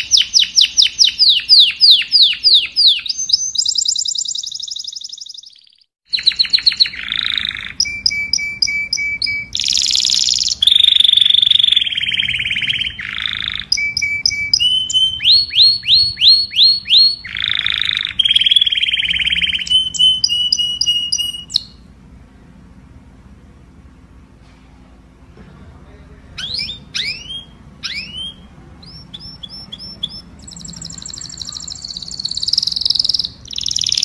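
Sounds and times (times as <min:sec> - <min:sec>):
canary singing: 0:00.0 - 0:22.0, 0:26.2 - 0:34.0.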